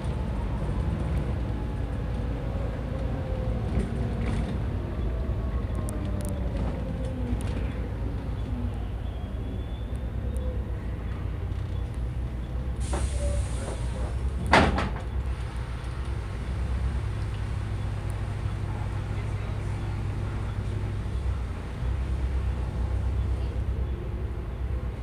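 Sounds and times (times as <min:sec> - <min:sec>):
bus engine idling: 0:00.0 - 0:25.0
hiss of air: 0:12.8 - 0:14.2.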